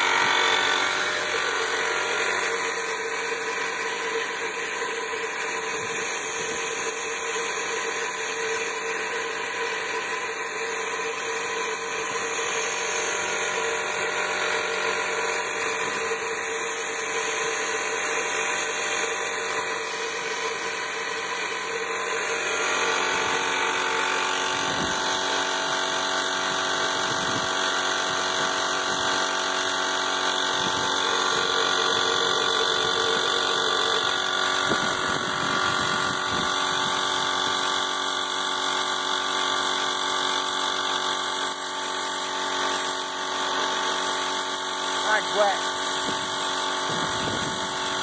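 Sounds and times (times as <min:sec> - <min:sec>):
motor humming and whining: 0:00.0 - 0:48.0.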